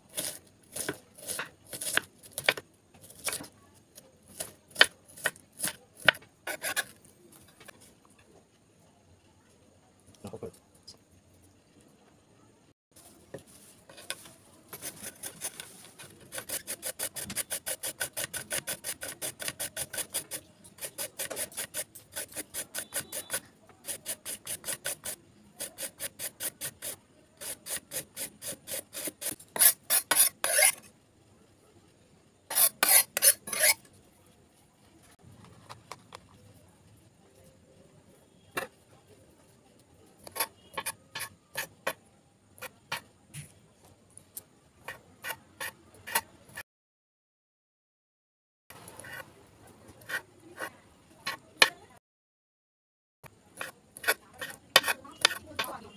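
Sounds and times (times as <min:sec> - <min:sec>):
knife strokes on worktop: 0:04.4 - 0:07.0, 0:13.3 - 0:30.9, 0:32.5 - 0:33.9, 0:40.2 - 0:42.0, 0:44.8 - 0:46.6, 0:48.9 - 0:49.3, 0:49.9 - 0:51.8, 0:53.6 - 0:55.7
carrot rasping on metal grater: 0:16.3 - 0:30.8, 0:32.5 - 0:33.8, 0:53.6 - 0:55.7.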